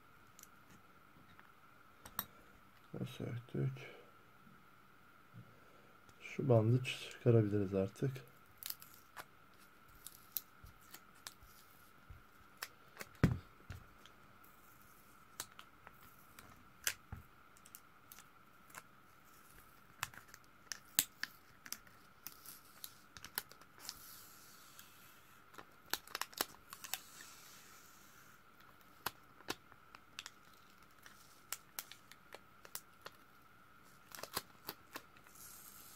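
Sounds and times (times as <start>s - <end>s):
faint high whine: 0.0s - 25.7s
tape and plastic clicks and crackles: 15.3s - 24.0s, 25.5s - 27.3s, 28.6s - 33.3s, 34.0s - 35.9s.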